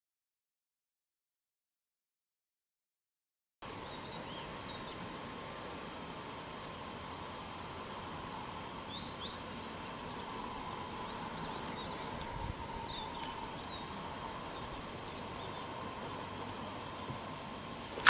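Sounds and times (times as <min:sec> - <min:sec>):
steady hiss and drone: 0:03.6 - 0:18.0
small birds chirping: 0:03.7 - 0:05.1, 0:06.6 - 0:18.0.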